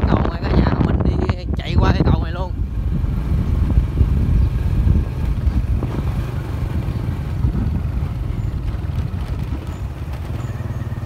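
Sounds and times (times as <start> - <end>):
wind rumble on microphone: 0.0 - 11.0
motorbike engine running: 2.4 - 11.0.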